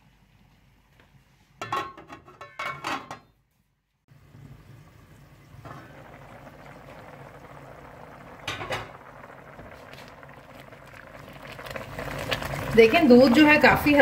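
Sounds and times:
milk bubbling in a pot: 4.1 - 14.0.

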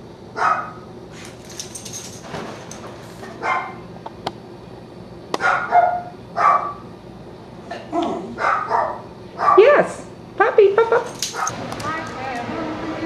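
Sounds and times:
dog barking: 0.4 - 0.8, 3.4 - 3.8, 5.4 - 6.9, 8.0 - 9.9, 11.3 - 11.6.

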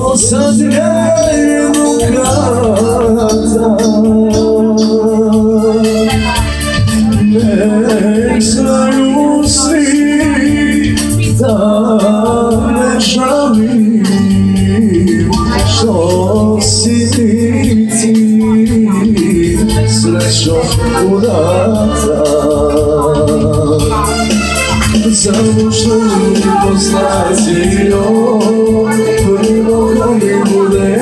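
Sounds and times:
band playing held chords: 0.0 - 31.0
person singing ornamented melody: 25.1 - 31.0.

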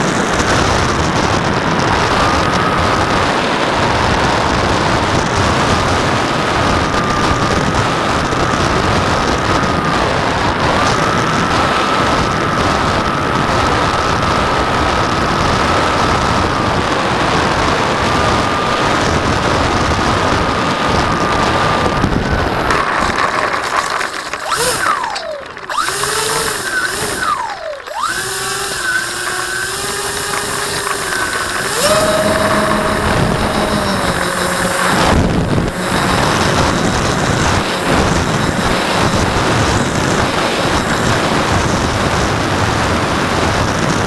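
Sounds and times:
electric motors whining: 0.0 - 44.0
rushing air: 28.0 - 44.0.

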